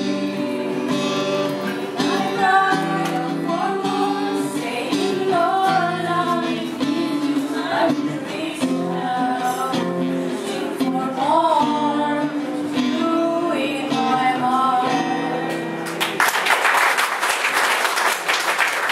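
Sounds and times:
strummed acoustic guitar: 0.0 - 16.0
women singing a worship song: 1.7 - 15.4
audience applauding: 15.8 - 18.9.

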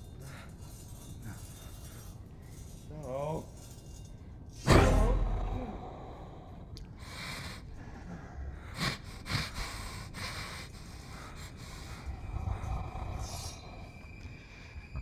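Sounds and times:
man breathing heavily: 4.8 - 15.0.

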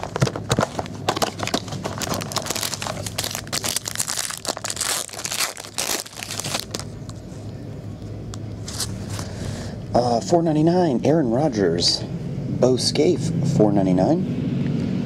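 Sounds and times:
cardboard box handling: 0.0 - 4.8
foil wrapper crinkling and tearing: 0.0 - 7.1.

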